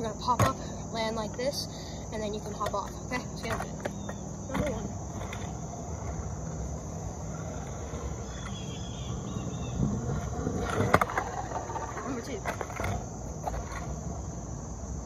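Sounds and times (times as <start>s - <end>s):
insects droning: 0.0s - 15.0s
scooter wheels rolling on asphalt: 0.0s - 15.0s
scooter clacking on pavement: 2.2s - 14.0s.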